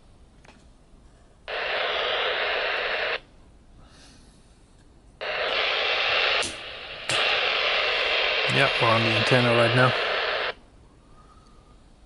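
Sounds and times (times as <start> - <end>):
radio loudspeaker static hiss: 1.5 - 3.3, 5.2 - 10.6.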